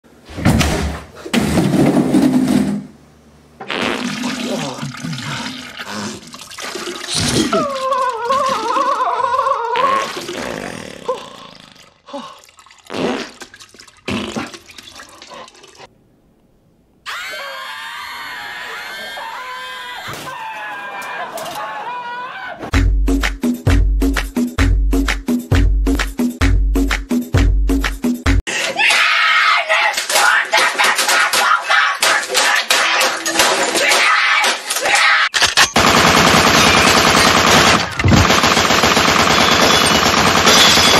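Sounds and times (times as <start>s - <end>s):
wet fart and splattering: 3.6s - 7.6s, 9.8s - 11.9s, 12.7s - 15.8s
music: 22.7s - 28.4s
rapid gunfire: 35.5s - 40.9s.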